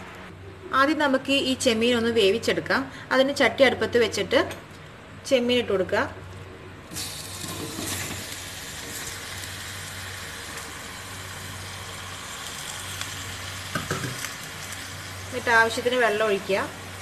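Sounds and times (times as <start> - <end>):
prawns sizzling in hot pot: 6.9 - 17.0.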